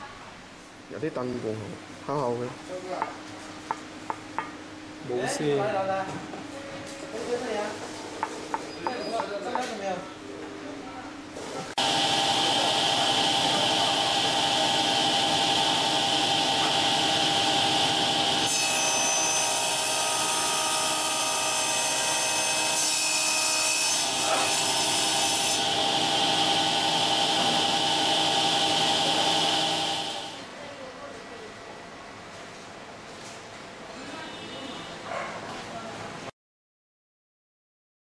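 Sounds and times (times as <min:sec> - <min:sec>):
saw cutting acrylic sheet: 0:11.8 - 0:30.4
table saw whine: 0:11.8 - 0:30.4.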